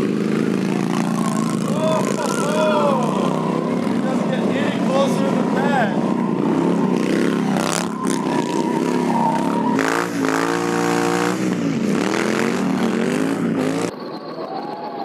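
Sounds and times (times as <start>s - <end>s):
motorcycle engine revving: 0.0s - 13.9s
tyre squeal: 0.8s - 11.3s.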